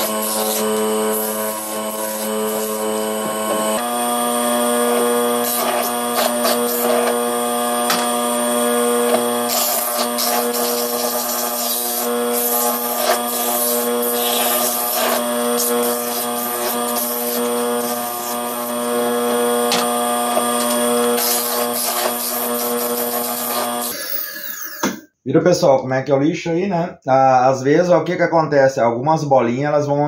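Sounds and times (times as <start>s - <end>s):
lathe motor humming: 0.0s - 25.0s
sandpaper rubbing on wood: 9.5s - 17.9s.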